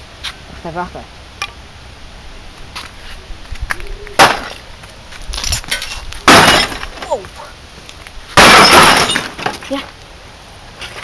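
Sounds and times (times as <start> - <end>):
smashing blows on plastic cabinet: 6.2 - 7.0, 8.4 - 9.5.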